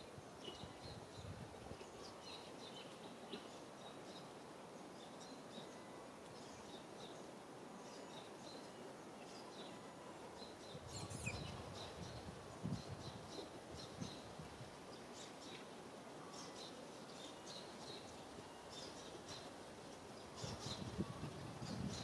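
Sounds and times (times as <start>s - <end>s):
small birds chirping: 10.4s - 22.0s.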